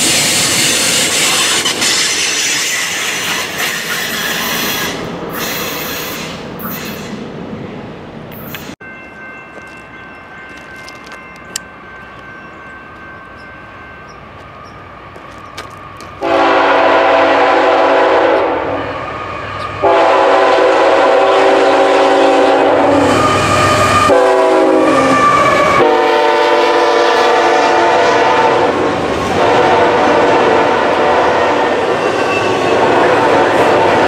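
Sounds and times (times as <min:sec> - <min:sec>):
locomotive air horn: 0:16.2 - 0:34.0.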